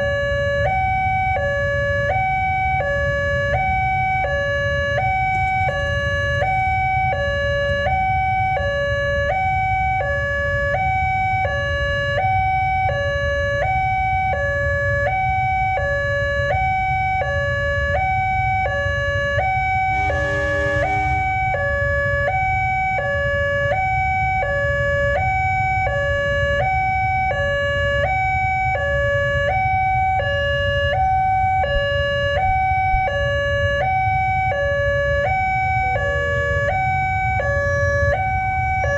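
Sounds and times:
alternating two-tone crossing alarm: 0.0 - 38.9
steady low rumble: 19.2 - 22.6
brief low honk: 19.5 - 22.0.

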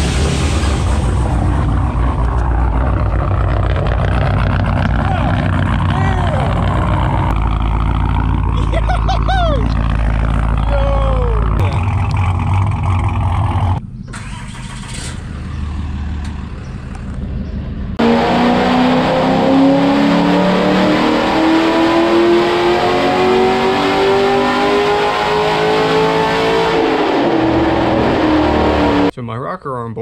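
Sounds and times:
engine revving on a dyno: 18.0 - 29.1.

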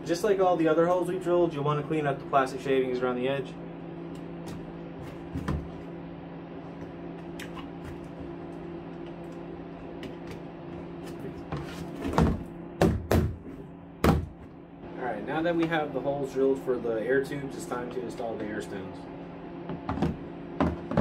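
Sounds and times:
low steady hum: 0.0 - 21.0
plastic tote knocks and thumps: 19.7 - 21.0.

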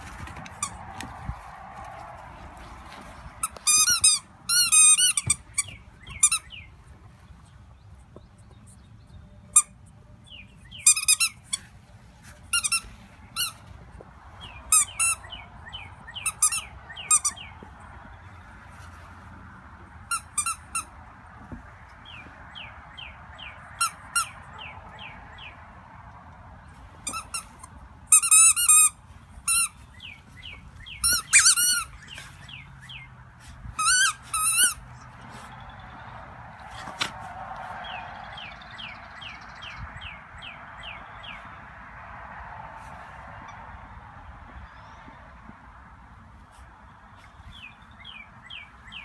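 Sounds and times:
squeaky toy squeaking: 3.4 - 6.4, 10.8 - 11.6, 12.5 - 13.6, 20.1 - 20.9, 27.1 - 29.8, 31.0 - 32.1, 33.7 - 34.9.

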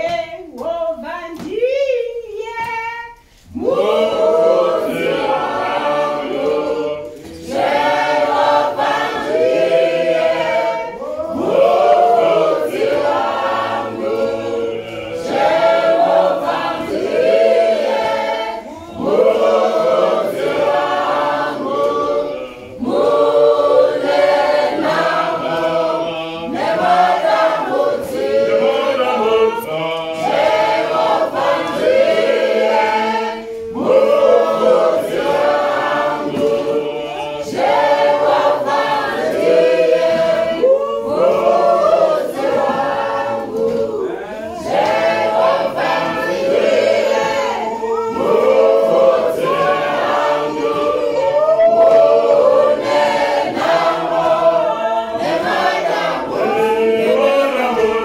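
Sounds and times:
mixed choir singing a cappella: 3.1 - 58.0.

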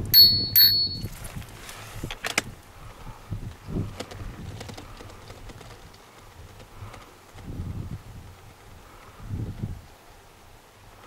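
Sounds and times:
bicycle bell ringing: 0.0 - 1.2
faint clicks and rattles: 3.5 - 7.5.

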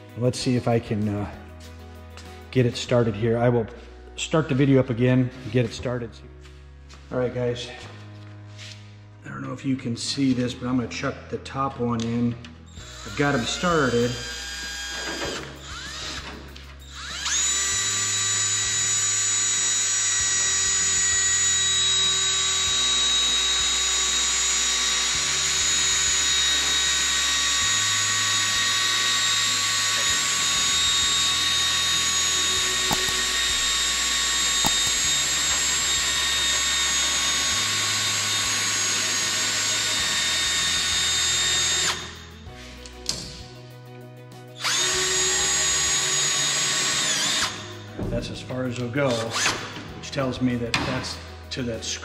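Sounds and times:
cordless drill motor whine: 12.7 - 42.4, 44.6 - 47.8.

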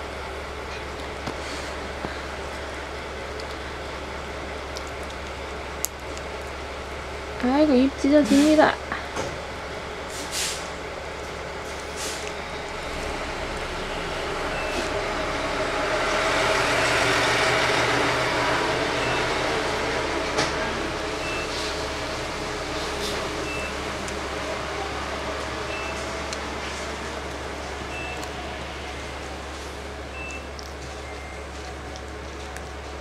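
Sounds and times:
large vehicle engine running: 0.0 - 33.0.

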